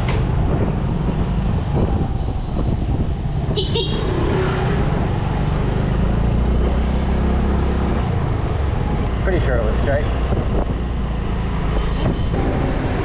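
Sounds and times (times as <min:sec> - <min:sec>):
road and wind noise: 0:00.0 - 0:13.0.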